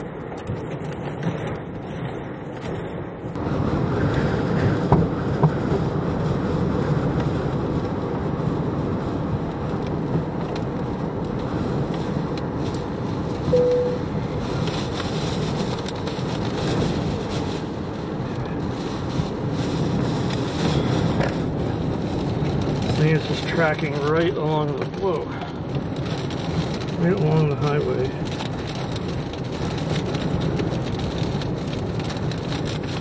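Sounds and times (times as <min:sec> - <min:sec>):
road and wind noise inside car: 0:00.0 - 0:33.0
short beep: 0:13.5 - 0:14.1.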